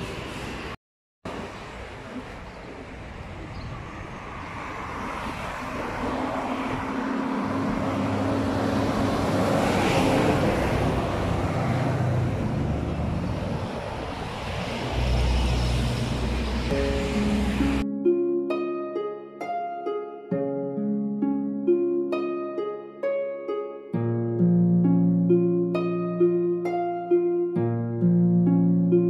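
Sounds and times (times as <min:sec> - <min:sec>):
highway traffic noise: 0:00.0 - 0:17.9
dump truck passing: 0:00.0 - 0:18.8.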